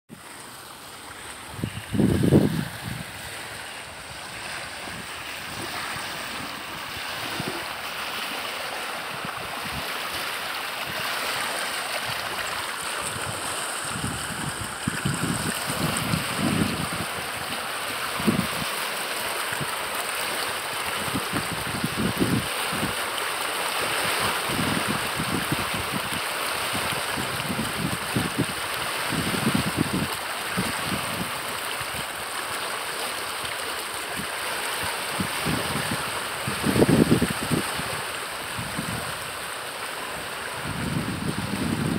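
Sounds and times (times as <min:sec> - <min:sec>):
creek rushing: 0:00.1 - 0:41.9
wind buffeting microphone: 0:01.4 - 0:07.8, 0:12.1 - 0:17.6, 0:18.2 - 0:18.7, 0:24.5 - 0:31.4, 0:35.1 - 0:39.3, 0:40.2 - 0:41.9.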